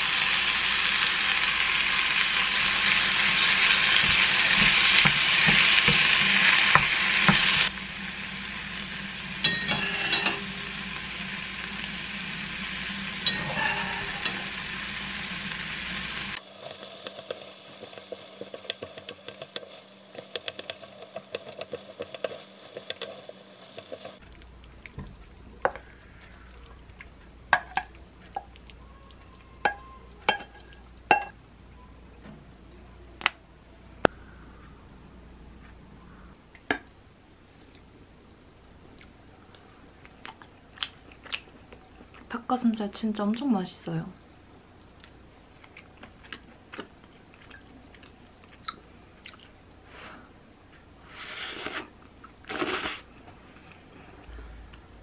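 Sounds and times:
sauce sizzling in a frying pan: 0.0 - 24.2
spatula stirring sauce: 16.4 - 24.9.

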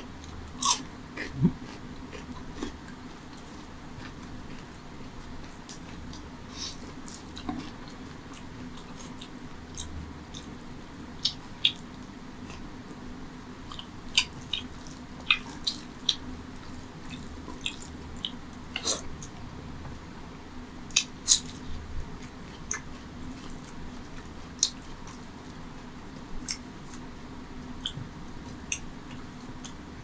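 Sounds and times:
steady low hum: 0.0 - 30.0
wet chewing: 13.7 - 19.4
lip smacks and mouth clicks: 17.1 - 19.0.

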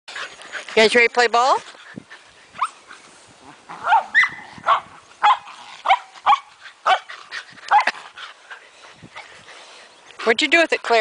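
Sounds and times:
dogs barking high-pitched: 3.7 - 8.0.

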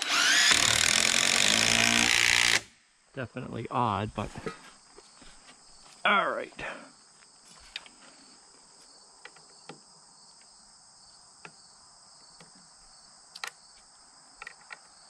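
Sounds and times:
crickets chirring: 3.2 - 15.0.

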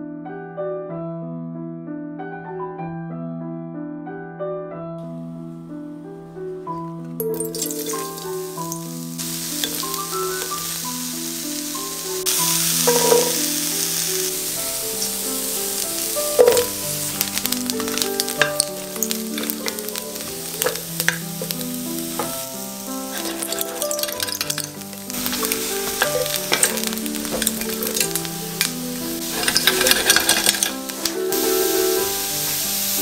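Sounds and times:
background piano music: 0.0 - 33.0
pieces knocking into a pan: 7.2 - 10.5, 12.3 - 14.0, 15.8 - 31.4
vegetables sizzling in a skillet: 7.2 - 33.0.

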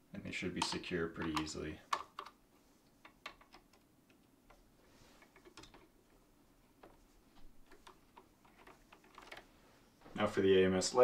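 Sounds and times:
plastic tubes clicking into couplings: 0.6 - 4.6, 7.7 - 9.5.

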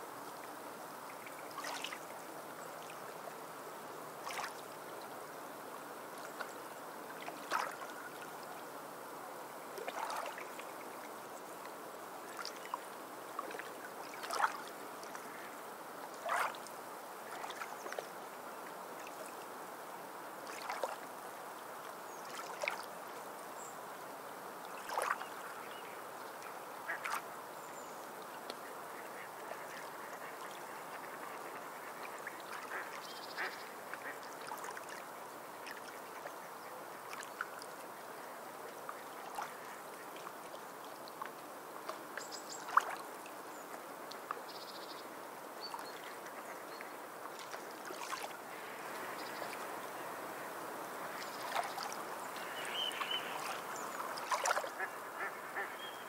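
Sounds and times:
sea waves on sandy beach: 47.4 - 55.6
short bird calls: 52.4 - 54.0.

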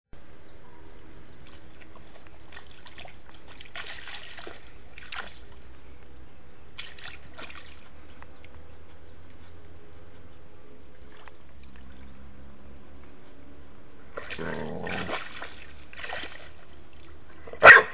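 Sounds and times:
dog splashing in water: 1.4 - 5.7, 6.7 - 8.2, 14.1 - 17.9.

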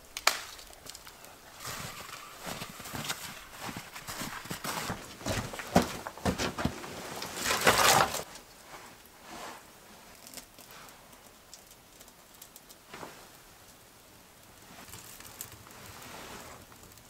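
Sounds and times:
handling dry kindling: 0.0 - 8.5
branches scraping when dragged: 0.0 - 9.8, 14.7 - 16.7
footsteps crunching in snow: 0.5 - 8.3.

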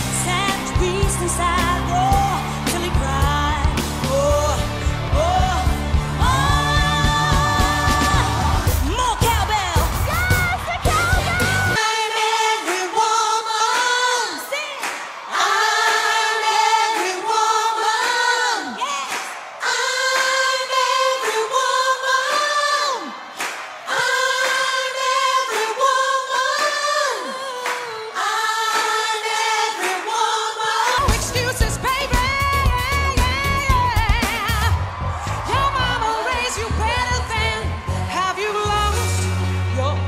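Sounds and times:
a cappella singing: 0.2 - 8.9, 11.4 - 34.7.

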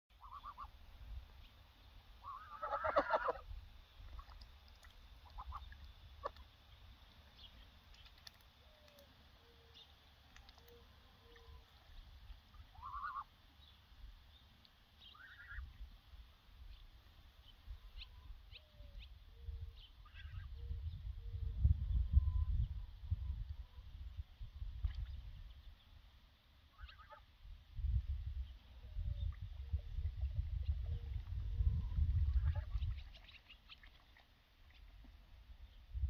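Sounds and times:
geese honking: 0.2 - 0.7, 2.2 - 3.4, 12.7 - 13.3, 15.1 - 15.6, 26.7 - 27.2.

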